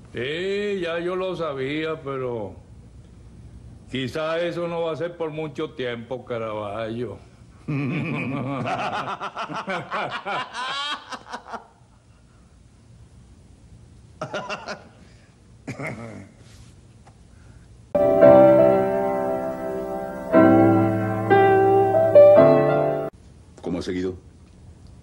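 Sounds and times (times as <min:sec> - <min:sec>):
piano music: 0:18.0 - 0:23.1.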